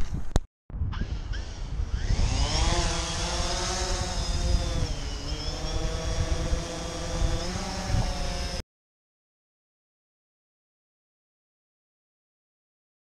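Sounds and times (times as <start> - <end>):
drone propellers whirring: 0.8 - 8.6.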